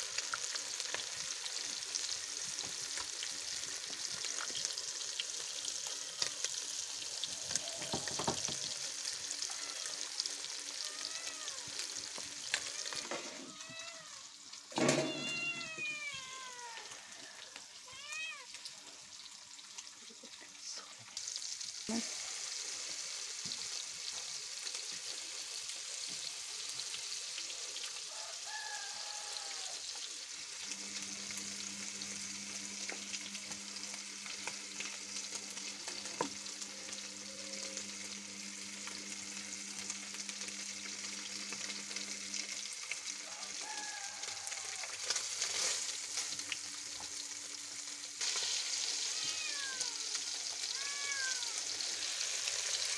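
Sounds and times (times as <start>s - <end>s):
oil crackles and spits: 0.0s - 15.0s, 29.9s - 52.9s
fish frying in hot oil: 0.0s - 52.9s.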